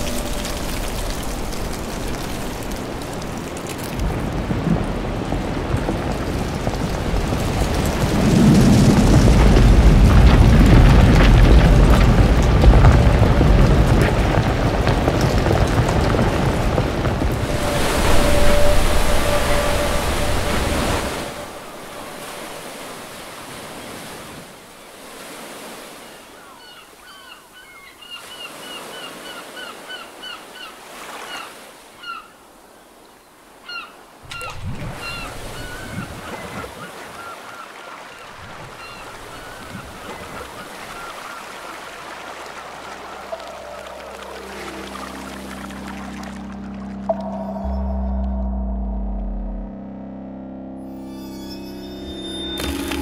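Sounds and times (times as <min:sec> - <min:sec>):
surf washing: 0:00.0 - 0:27.0, 0:33.5 - 0:47.5
sea waves crashing: 0:00.0 - 0:32.8, 0:33.4 - 0:47.7, 0:51.2 - 0:53.0
seagulls calling: 0:26.1 - 0:32.4, 0:33.6 - 0:46.3.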